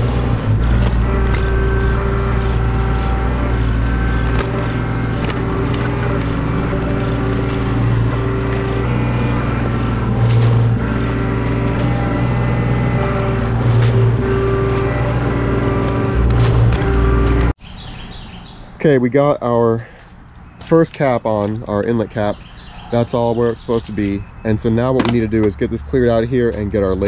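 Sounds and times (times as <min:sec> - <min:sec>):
motor engine running: 0:00.0 - 0:17.6.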